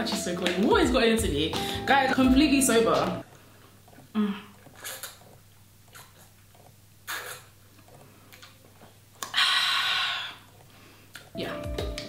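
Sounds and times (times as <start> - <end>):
person sucking and gulping water: 4.0 - 11.3.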